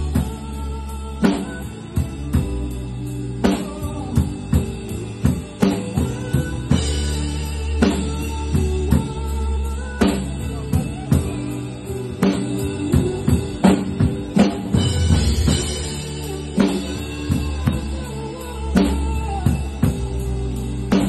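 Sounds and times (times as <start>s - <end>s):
backing music track: 0.0s - 21.0s
drum kit playing: 0.0s - 21.0s.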